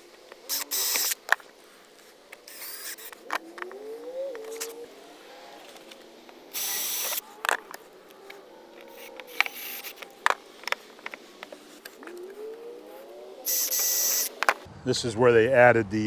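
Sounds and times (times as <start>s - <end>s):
cordless drill bursts: 0.5s - 1.2s, 2.5s - 3.2s, 6.5s - 7.2s, 13.5s - 14.3s.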